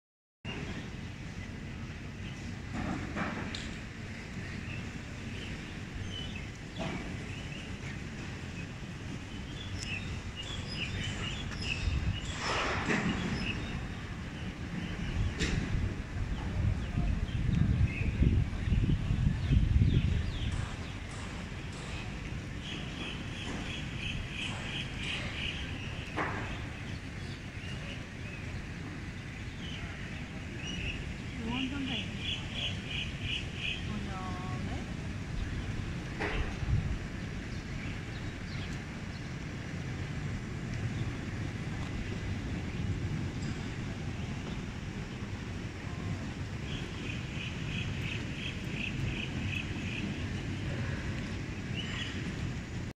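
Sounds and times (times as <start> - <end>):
small birds chirping: 4.4 - 15.5, 16.3 - 34.6, 46.4 - 52.4.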